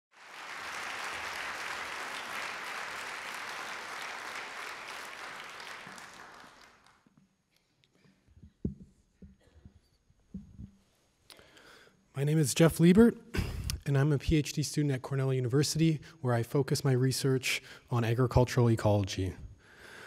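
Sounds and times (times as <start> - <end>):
audience applauding: 0.1 - 7.1.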